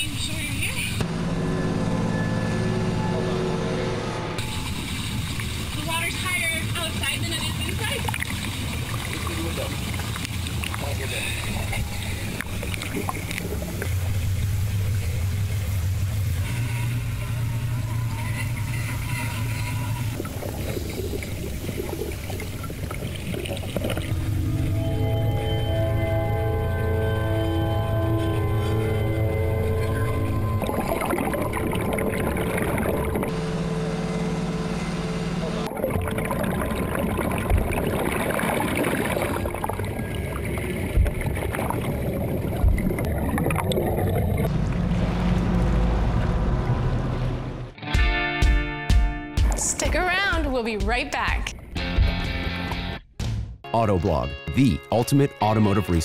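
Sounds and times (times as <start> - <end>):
steady low hum: 0.0 - 47.8
music with sustained tones: 1.0 - 7.7, 24.0 - 37.3
water sloshing and bubbling: 2.0 - 47.8
dull low thumps: 20.1 - 38.7, 40.6 - 53.7.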